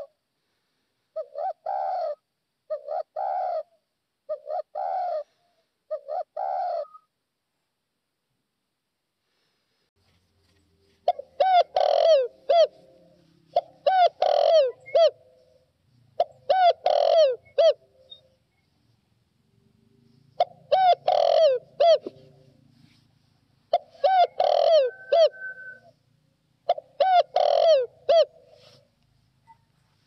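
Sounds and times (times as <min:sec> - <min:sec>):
dove cooing: 0:01.2 - 0:07.1, 0:11.0 - 0:18.3, 0:19.6 - 0:22.8, 0:23.7 - 0:26.0, 0:26.6 - 0:28.9.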